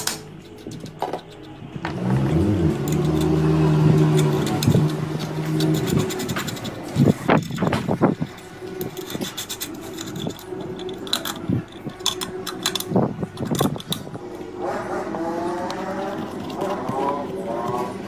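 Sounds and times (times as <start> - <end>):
metal clinks and scrapes: 0.0 - 18.0
low hum: 0.2 - 18.0.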